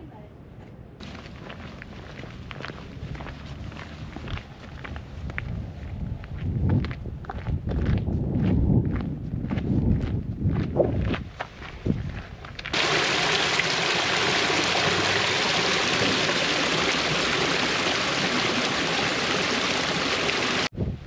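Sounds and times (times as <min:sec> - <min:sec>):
quiet footsteps: 0:00.6 - 0:12.8
water rushing over rock: 0:12.8 - 0:20.7.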